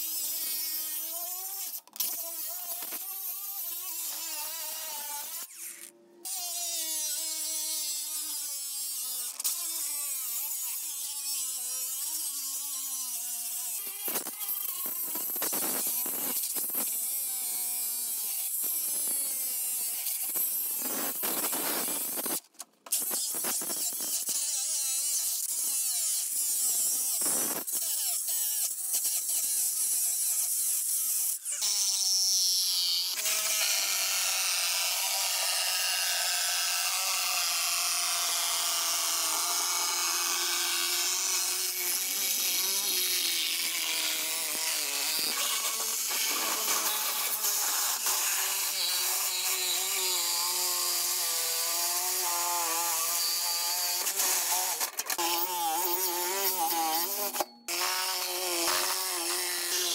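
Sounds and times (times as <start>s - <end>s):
angle grinder cutting steel: 0.0s - 59.9s.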